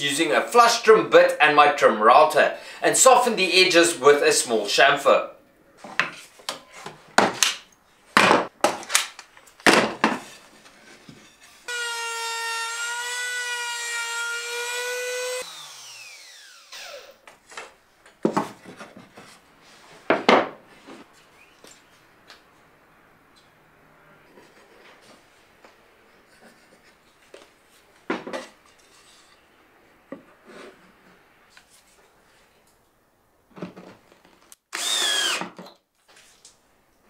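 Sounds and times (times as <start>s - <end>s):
trim router whining: 11.7s - 17.3s, 34.7s - 35.5s
scraping strokes on wood: 28.6s - 29.5s.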